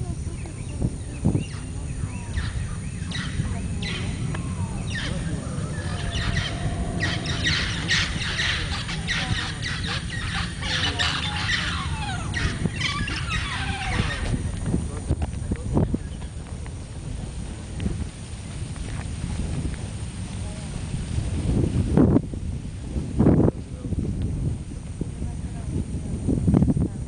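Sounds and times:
low rumble: 0:00.0 - 0:26.3
birds chirping and whistling: 0:00.4 - 0:14.5.

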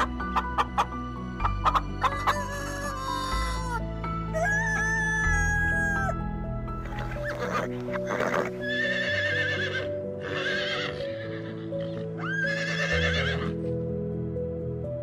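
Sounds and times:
background music: 0:00.0 - 0:15.0
horse whinnying: 0:07.2 - 0:13.6.

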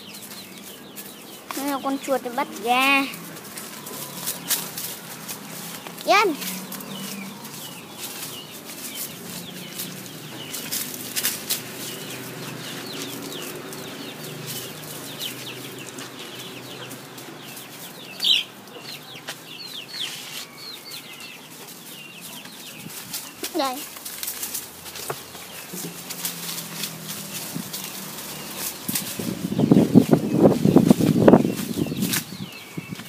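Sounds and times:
birds chirping: 0:00.0 - 0:33.0
dogs rustling through undergrowth: 0:00.0 - 0:33.0.

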